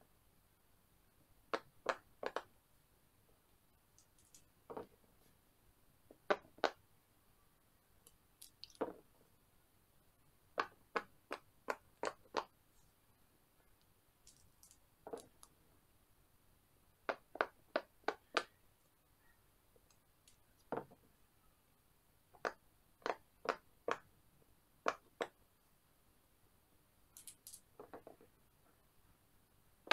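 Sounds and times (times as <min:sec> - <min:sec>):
dice dropping on silicone: 0:08.4 - 0:09.0, 0:27.2 - 0:28.2.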